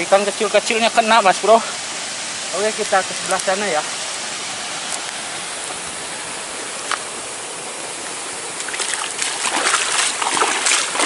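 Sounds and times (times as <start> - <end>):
river water flowing: 0.0 - 11.0
person wading splashing: 8.3 - 11.0.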